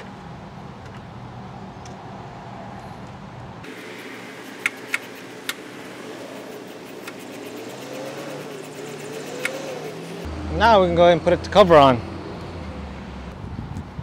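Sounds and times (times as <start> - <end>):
outdoor hiss: 3.6 - 10.0
faint engine drone: 3.6 - 13.4.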